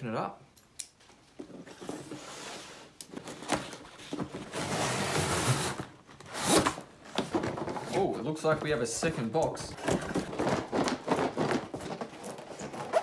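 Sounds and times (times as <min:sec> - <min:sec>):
cardboard rustling and scraping: 0:01.4 - 0:13.0.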